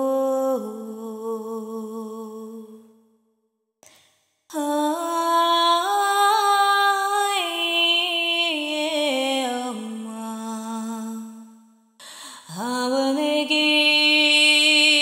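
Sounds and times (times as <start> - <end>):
woman singing long held tones: 4.5 - 11.3, 12.2 - 15.0.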